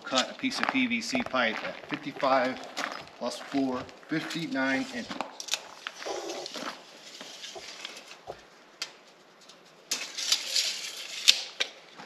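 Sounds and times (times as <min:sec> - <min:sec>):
rustling scrape: 0:04.2 - 0:08.3, 0:09.0 - 0:11.6.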